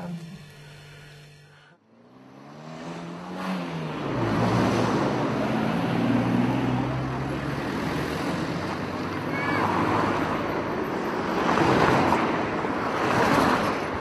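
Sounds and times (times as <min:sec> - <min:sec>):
large vehicle engine running: 0:00.0 - 0:01.9.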